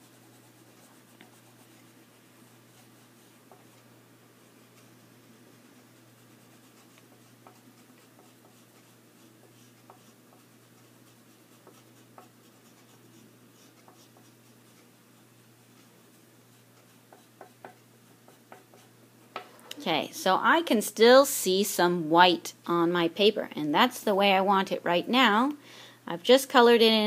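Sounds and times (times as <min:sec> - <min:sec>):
crayon scratching on paper: 0:00.0 - 0:03.8, 0:06.0 - 0:14.9, 0:16.5 - 0:18.9.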